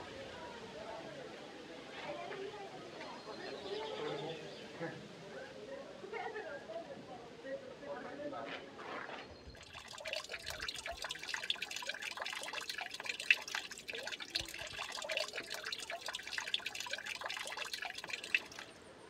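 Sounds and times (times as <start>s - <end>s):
louder water splashes: 9.6s - 18.8s
water dripping and trickling: 9.6s - 18.8s.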